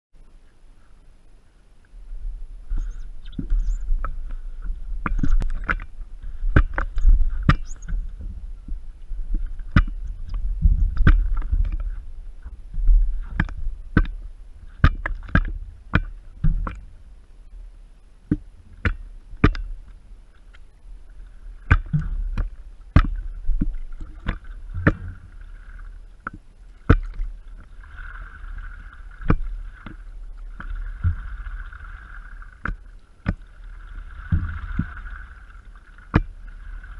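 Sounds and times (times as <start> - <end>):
paddle strokes: 0.2 - 36.9
steady low rumble: 0.2 - 36.9
water lapping against board: 2.7 - 17.0, 18.2 - 36.9.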